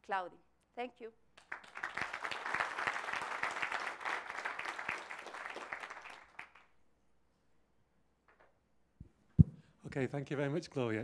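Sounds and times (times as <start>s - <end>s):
audience applauding: 1.4s - 6.7s.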